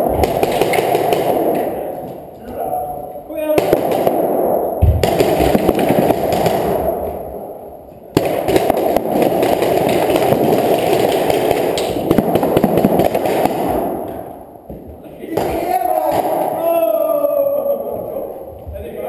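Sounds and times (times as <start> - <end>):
paintball markers firing: 0.0 - 2.2, 8.1 - 14.8.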